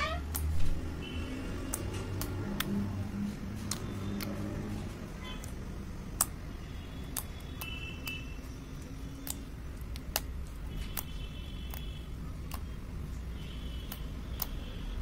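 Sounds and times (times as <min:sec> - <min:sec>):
slime popping and clicking: 0:05.4 - 0:06.4, 0:07.0 - 0:08.2, 0:09.2 - 0:12.8, 0:13.7 - 0:14.7.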